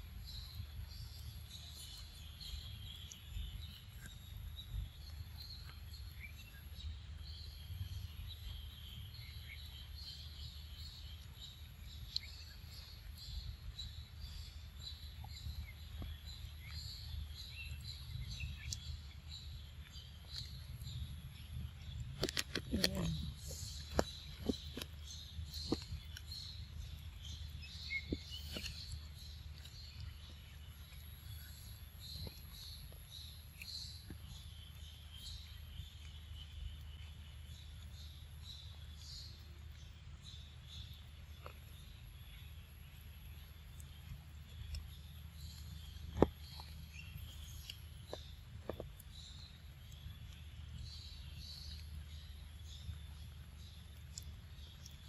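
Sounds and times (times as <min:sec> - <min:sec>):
bird chirps: 0:00.2 - 0:55.0.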